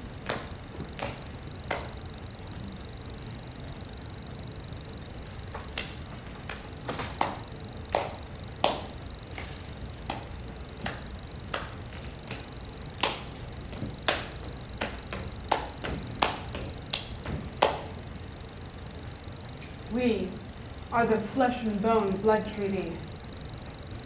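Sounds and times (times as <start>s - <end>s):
footsteps on stage floor: 9.4s - 17.8s.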